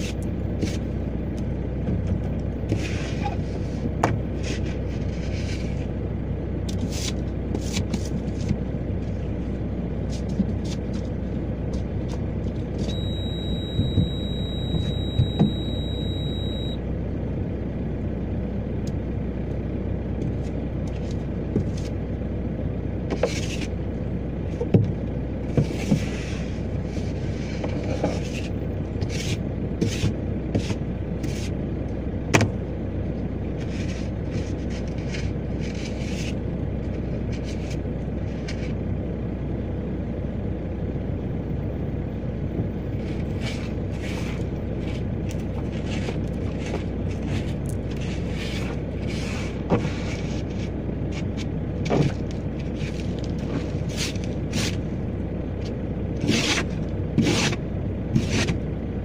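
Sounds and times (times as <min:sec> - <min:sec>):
diesel engine idling: 0:00.0 - 0:59.0
windscreen scraping: 0:02.6 - 0:05.9, 0:25.5 - 0:31.5, 0:42.9 - 0:54.9, 0:56.2 - 0:58.6.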